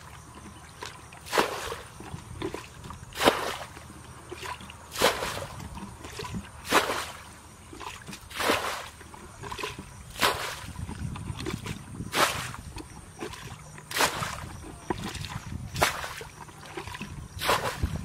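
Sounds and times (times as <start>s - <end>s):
muddy water splashing from bucket: 0.0s - 18.0s.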